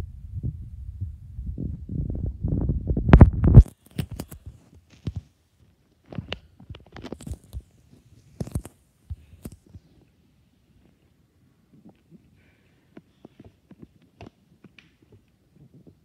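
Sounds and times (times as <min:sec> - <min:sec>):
low rumbling thumps: 0:00.0 - 0:03.7
microphone handling noise: 0:00.0 - 0:05.3.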